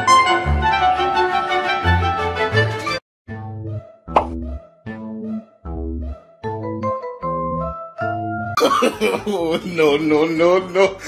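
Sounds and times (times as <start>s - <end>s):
instrumental tune with bass: 0.0s - 8.6s.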